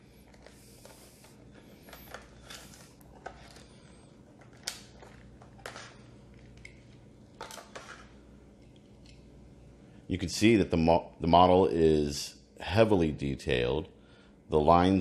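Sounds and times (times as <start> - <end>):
plastic packaging crinkling: 0.2 - 8.2.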